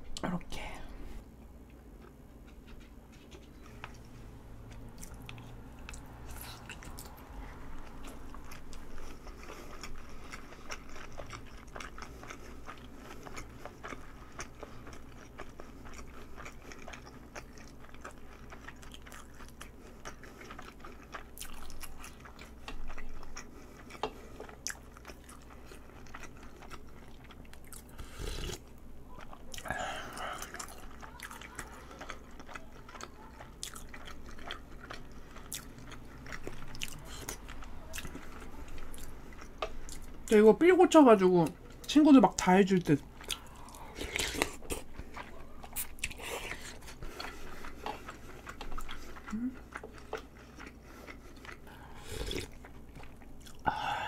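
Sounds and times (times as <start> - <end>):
close chewing with wet mouth clicks: 1.7 - 40.4, 41.4 - 53.7.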